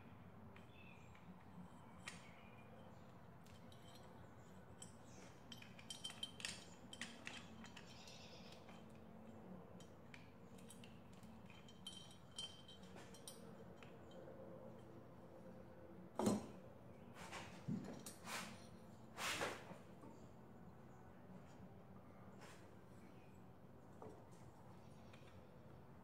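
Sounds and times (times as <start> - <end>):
faint metallic clinks and taps: 0.6 - 15.0.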